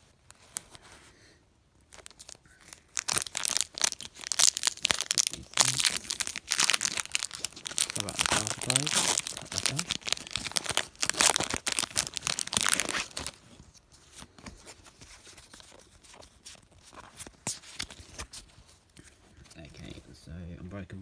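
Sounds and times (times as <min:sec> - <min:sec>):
foil wrapper tearing and crinkling: 0:01.9 - 0:14.4.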